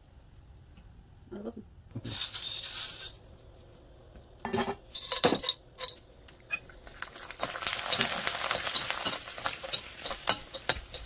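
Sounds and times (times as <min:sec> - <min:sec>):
oil sizzling: 0:04.8 - 0:11.0
pellets clattering into wok: 0:04.9 - 0:06.0, 0:06.8 - 0:11.0.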